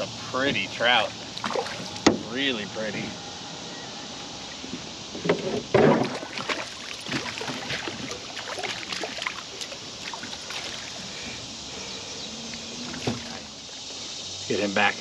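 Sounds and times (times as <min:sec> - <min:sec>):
fish splashing at surface: 0:01.4 - 0:02.0, 0:05.9 - 0:11.0.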